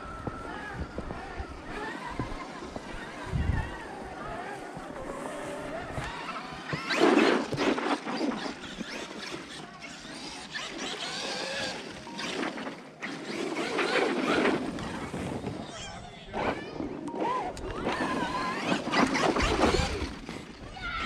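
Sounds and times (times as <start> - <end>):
electric motor whining: 0.0 - 15.8, 17.1 - 20.6
tyres churning snow: 0.0 - 21.0.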